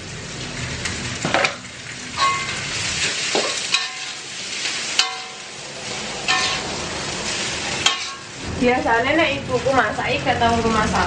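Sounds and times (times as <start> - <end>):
rice sizzling in a wok: 0.0 - 11.0
spatula scraping wok: 1.4 - 8.6
spatula clanking on pan: 2.2 - 2.6, 3.2 - 4.2, 4.9 - 5.6, 6.2 - 6.8, 7.8 - 8.3.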